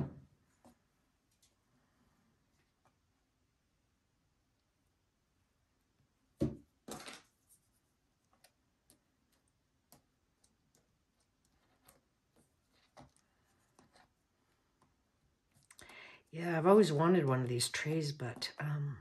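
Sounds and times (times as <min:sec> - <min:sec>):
knock: 0:06.4 - 0:06.6.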